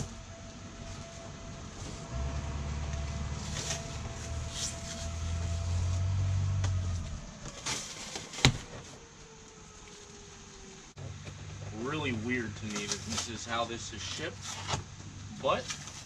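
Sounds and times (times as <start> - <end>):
low rumble: 0.0 - 7.6.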